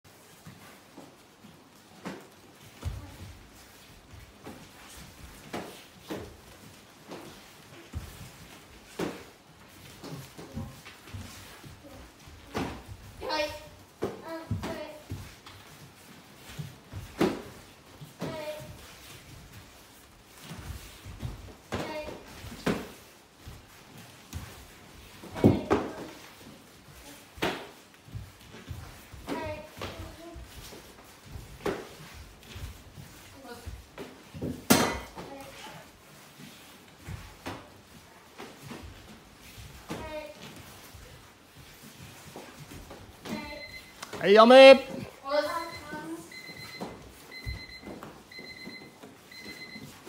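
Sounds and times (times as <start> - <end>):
light footfalls on foam mats: 0.1 - 50.0.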